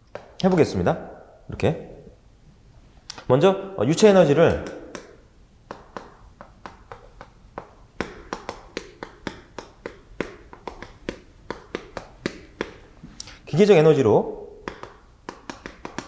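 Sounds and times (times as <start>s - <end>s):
chalk tapping on chalkboard: 0.0s - 0.8s, 4.5s - 13.0s, 14.6s - 16.0s.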